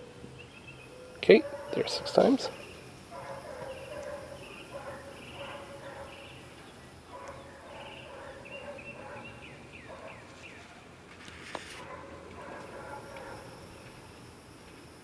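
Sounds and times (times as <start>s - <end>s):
birds chirping: 0.0s - 10.8s.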